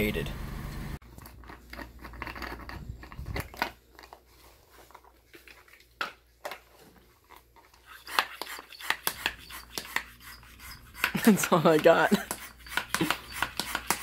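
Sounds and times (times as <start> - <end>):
small objects clicking and tapping: 12.2 - 14.0.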